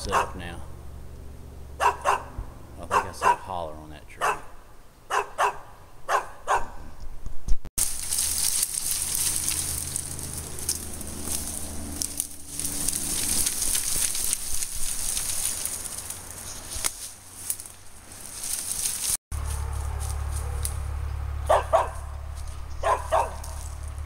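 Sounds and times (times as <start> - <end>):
dog barking: 0.0 - 0.5, 1.8 - 3.5, 4.2 - 4.5, 5.1 - 6.9, 19.6 - 20.8, 21.5 - 22.1, 22.8 - 23.6
dry brush rustling and crackling: 7.8 - 24.0.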